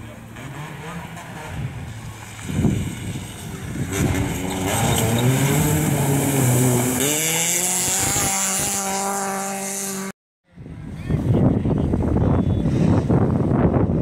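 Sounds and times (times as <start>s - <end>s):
rally car engine revving: 0.0s - 10.2s
water splashing: 1.8s - 8.2s.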